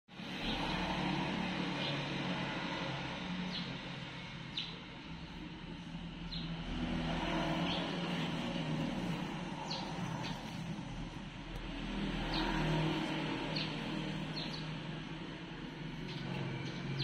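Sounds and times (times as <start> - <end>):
low engine hum: 5.0 - 17.0.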